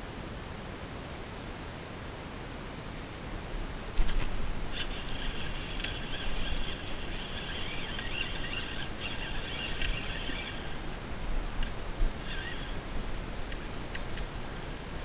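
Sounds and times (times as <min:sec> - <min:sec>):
low wind rumble: 0:02.6 - 0:15.0
fishing reel whirring: 0:04.0 - 0:14.2
rod and reel clicks: 0:04.0 - 0:14.4.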